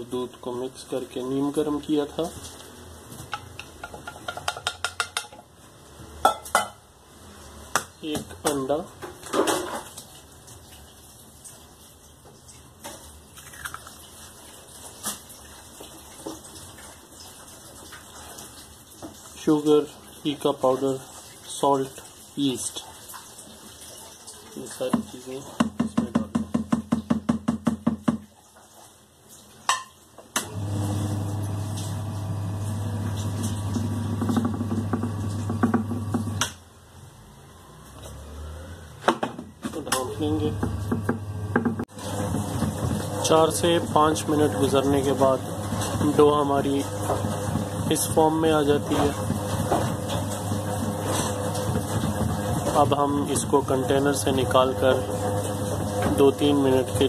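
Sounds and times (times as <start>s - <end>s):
eggshell cracking: 13.4s - 14.0s
kneading machine motor humming: 30.4s - 36.4s, 40.0s - 57.0s.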